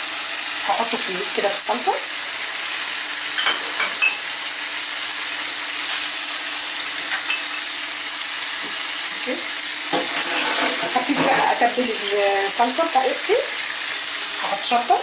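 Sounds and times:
shrimp sizzling in a frying pan: 0:00.0 - 0:15.0
spoon clinking against pan: 0:07.2 - 0:07.6.

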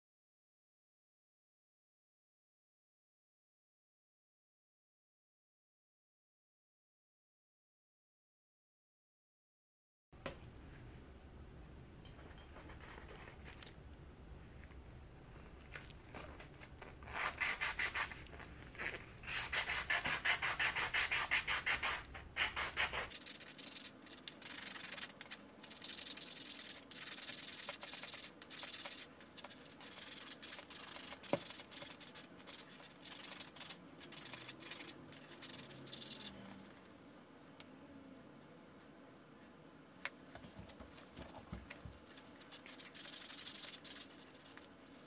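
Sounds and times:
sandpaper rubbing on metal can: 0:19.2 - 0:36.7, 0:42.4 - 0:45.0.

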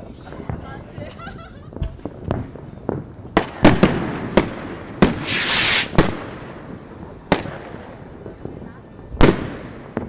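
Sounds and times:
firework bangs: 0:01.7 - 0:10.0
firework hissing crackle: 0:05.0 - 0:07.4.

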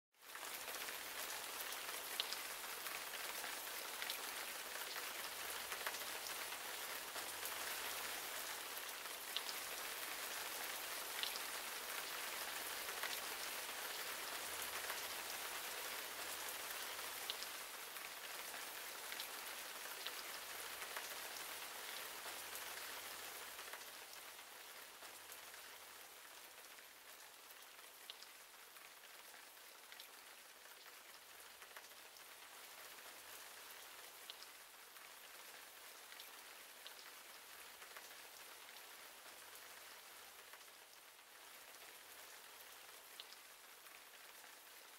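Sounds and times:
rain on leaves: 0:00.2 - 0:44.9.

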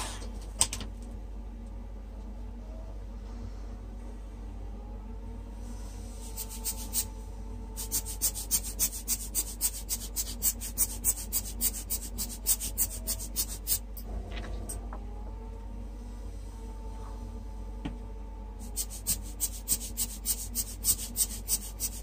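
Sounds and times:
air blower hissing puffs: 0:00.0 - 0:00.4.

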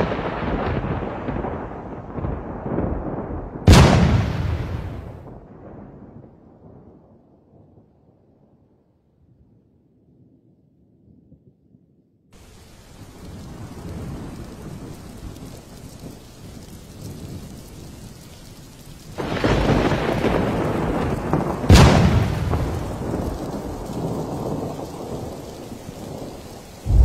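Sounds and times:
sharp thunderclap: 0:00.0 - 0:05.4, 0:19.2 - 0:27.0
thunder rolling: 0:00.0 - 0:05.8, 0:19.2 - 0:27.0
rain falling steadily: 0:00.0 - 0:07.6, 0:12.4 - 0:27.0.

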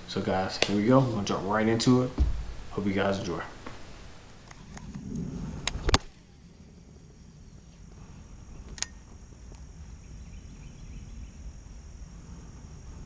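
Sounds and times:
insects chirring: 0:00.0 - 0:13.0
low rumble: 0:04.6 - 0:13.0
sharp click: 0:08.7 - 0:09.0.

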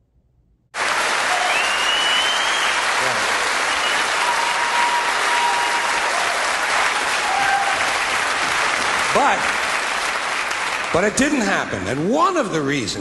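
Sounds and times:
audience applauding: 0:00.8 - 0:12.2
long whistles: 0:01.3 - 0:06.1.

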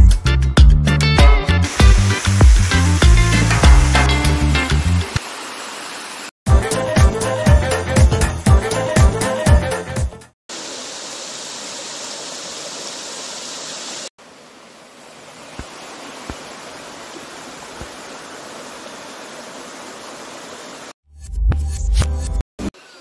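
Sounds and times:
water rushing over rocks: 0:01.7 - 0:06.3, 0:10.5 - 0:21.0.

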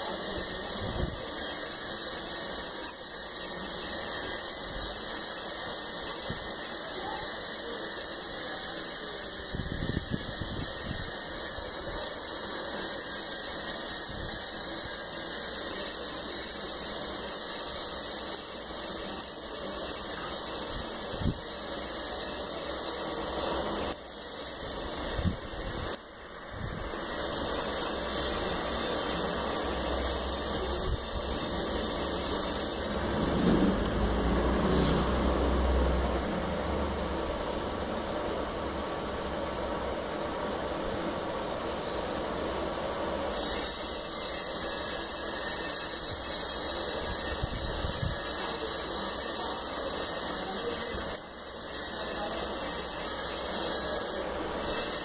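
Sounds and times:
blowing air hiss: 0:00.0 - 0:36.2, 0:37.3 - 0:55.0.

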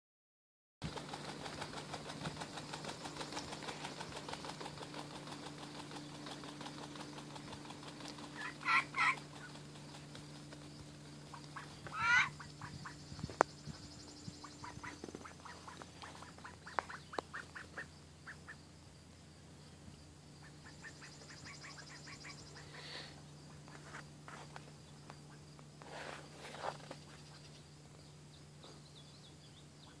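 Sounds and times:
low hum: 0:00.8 - 0:30.0
ducks quacking: 0:08.4 - 0:09.5, 0:11.3 - 0:13.0, 0:14.4 - 0:18.6.

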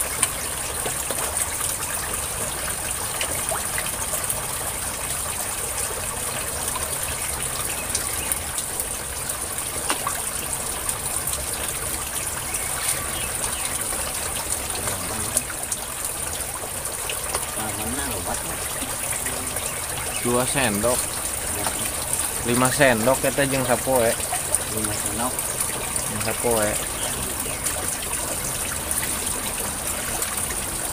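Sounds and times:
churning bubbling water: 0:00.0 - 0:30.9.

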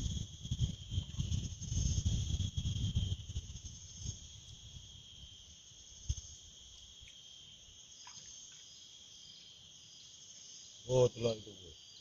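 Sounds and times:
insects chirping chorus: 0:00.0 - 0:12.0.

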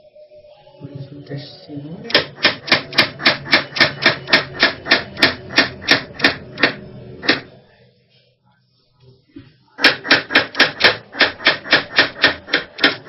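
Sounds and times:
knife chopping on plastic board: 0:09.8 - 0:13.0.

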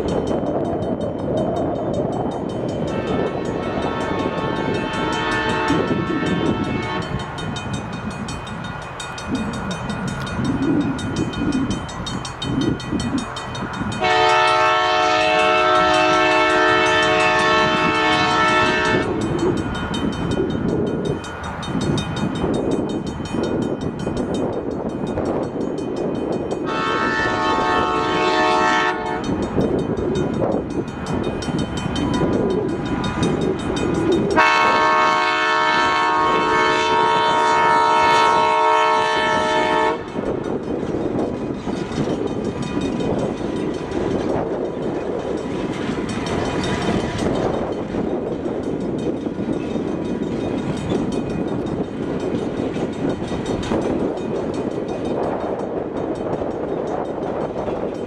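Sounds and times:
low train rumble: 0:00.0 - 0:58.0
locomotive horn blasts: 0:02.8 - 0:07.3, 0:14.0 - 0:19.2, 0:26.6 - 0:29.5, 0:34.4 - 0:40.3.

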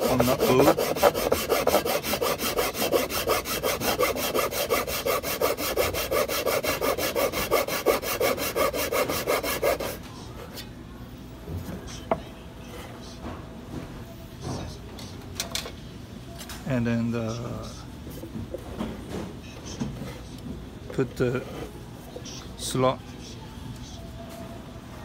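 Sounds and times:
thin blade sawing wood: 0:00.0 - 0:10.0.

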